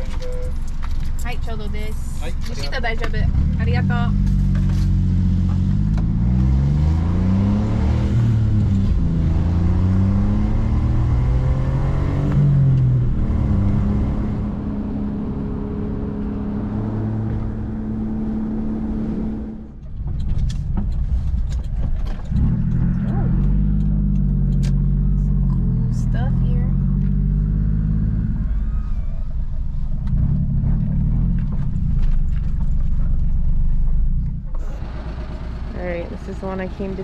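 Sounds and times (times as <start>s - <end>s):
van engine accelerating: 0.0s - 37.0s
sharp clicks: 19.8s - 24.9s.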